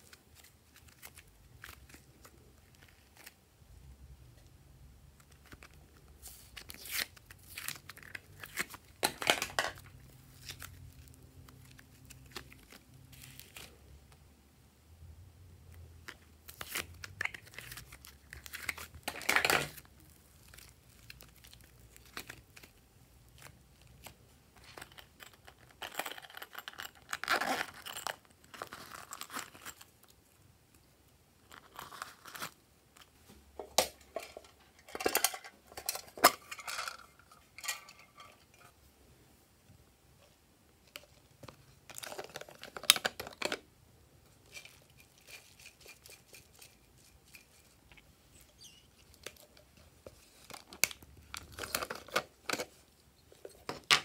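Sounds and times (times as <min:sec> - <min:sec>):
plastic crinkling and tearing: 0:00.0 - 0:03.4, 0:05.2 - 0:13.8, 0:16.4 - 0:24.2, 0:27.0 - 0:30.1, 0:44.4 - 0:47.8, 0:50.1 - 0:52.8.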